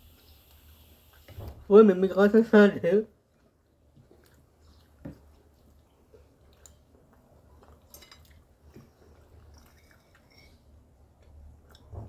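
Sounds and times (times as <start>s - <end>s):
people chewing: 3.3s - 12.0s.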